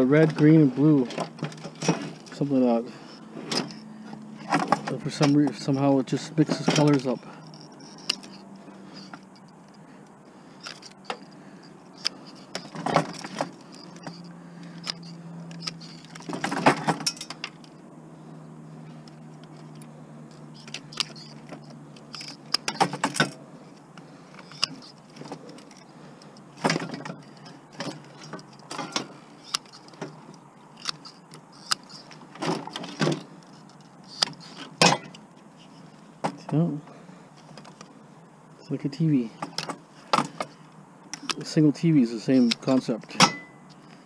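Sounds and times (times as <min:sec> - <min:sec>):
metal and plastic parts clinking: 0:00.2 - 0:02.6, 0:04.4 - 0:09.8, 0:10.6 - 0:17.8, 0:19.0 - 0:23.4, 0:24.0 - 0:35.2.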